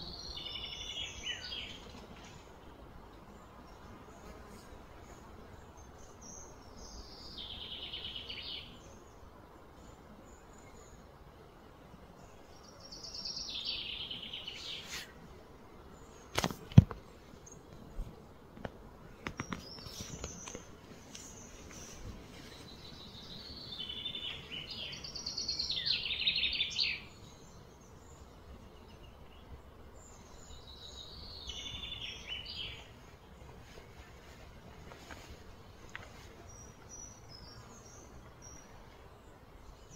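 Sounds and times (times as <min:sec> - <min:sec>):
bird singing trilled phrases: 0:22.8 - 0:29.5, 0:30.1 - 0:32.9.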